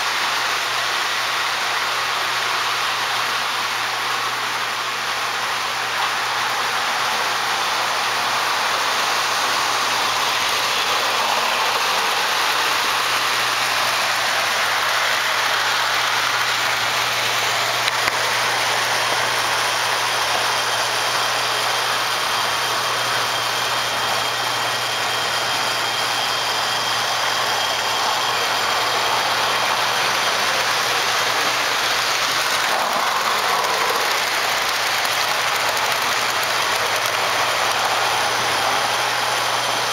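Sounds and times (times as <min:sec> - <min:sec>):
model trains whirring on rails: 0:00.0 - 0:39.9
train rolling past close: 0:25.9 - 0:39.9.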